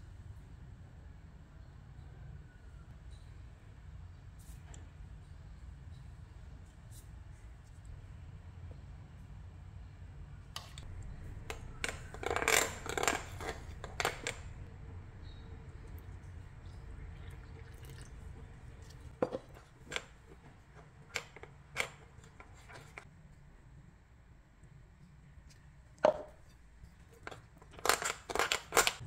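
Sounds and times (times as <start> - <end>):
low steady hum: 0.0 - 29.0
spoon scraping glass bowl: 11.4 - 14.6.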